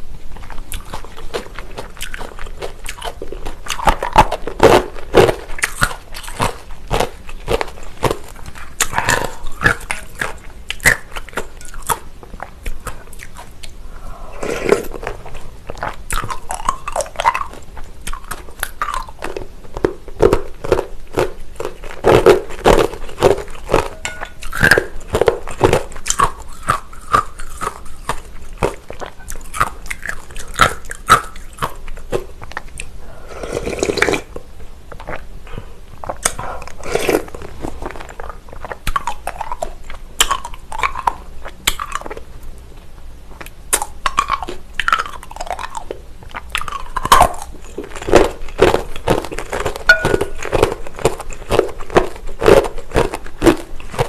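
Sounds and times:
chewing with crunches: 0.0 - 54.0
slurping noodles: 13.9 - 15.4, 33.0 - 34.3, 36.4 - 37.9.

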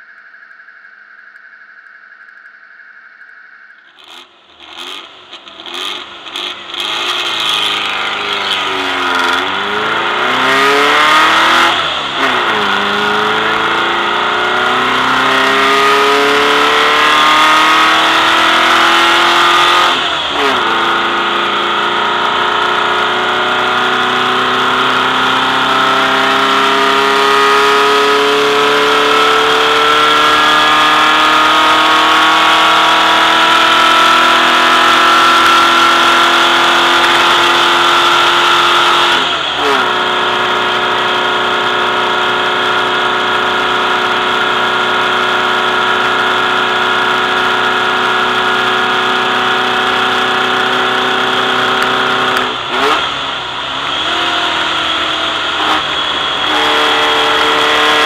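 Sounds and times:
gear upshifts: 3.2 - 13.8
race car engine accelerating: 3.9 - 58.0.

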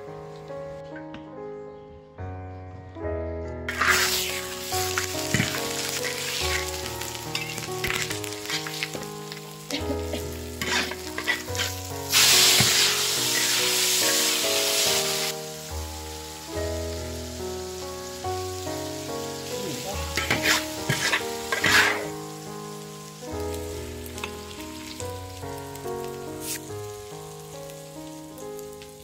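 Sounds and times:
soft background music: 0.0 - 29.0
metal spatula scraping a pan: 3.7 - 9.0, 10.1 - 14.4, 20.1 - 22.2
food sizzling in a wok: 3.7 - 29.0.

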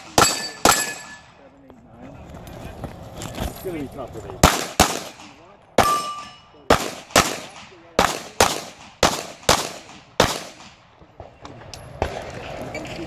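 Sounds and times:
handgun shots with echo: 0.0 - 1.2.

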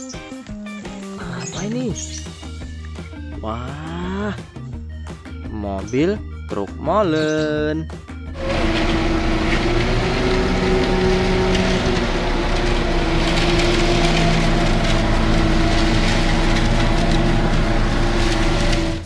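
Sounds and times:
diesel truck engine drone: 8.1 - 19.0
mechanical rattling: 8.4 - 19.0.

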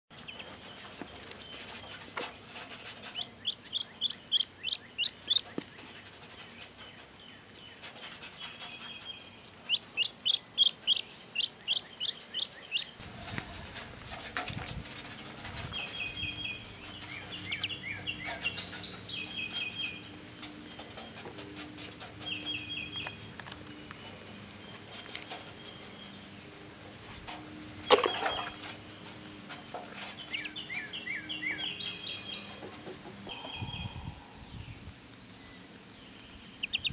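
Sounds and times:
duckling peeping: 0.2 - 6.0, 8.4 - 13.8, 14.9 - 24.2, 27.8 - 29.2, 36.4 - 36.9.

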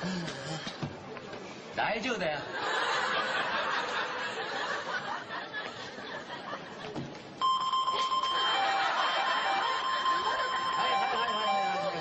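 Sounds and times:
lower alarm tone: 7.4 - 12.0
metal detector alarm tone: 7.4 - 12.0.

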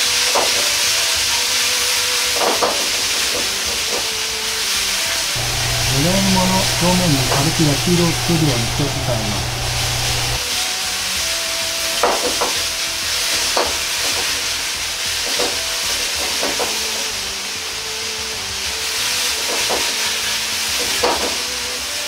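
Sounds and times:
food sizzling in a wok: 0.6 - 5.3, 12.2 - 21.5.

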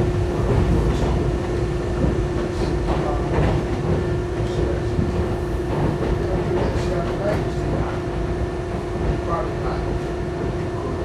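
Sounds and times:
constant hum: 0.0 - 11.0
subway car rumbling on rails: 0.0 - 11.0
clicks and clacks: 2.0 - 7.8.

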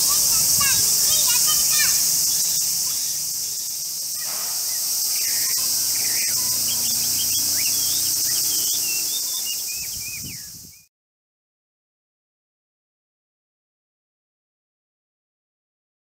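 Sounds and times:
bird chirps: 0.0 - 10.9
cicadas droning: 0.0 - 10.9.

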